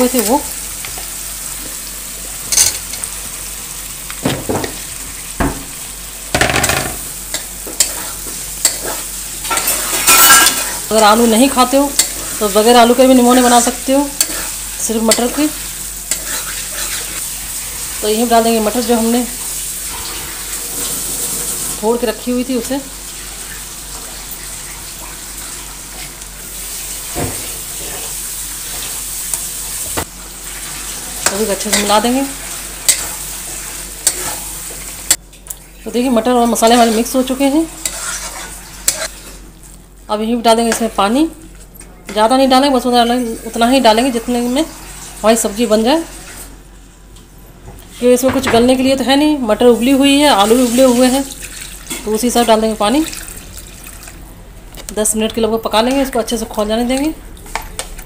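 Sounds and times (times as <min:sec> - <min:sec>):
food sizzling in a pan: 0:00.0 - 0:35.3, 0:35.9 - 0:41.4, 0:42.6 - 0:47.0, 0:49.6 - 0:54.2
spoon knocking and scraping a pan: 0:04.2 - 0:04.8, 0:05.4 - 0:05.7, 0:06.3 - 0:10.8.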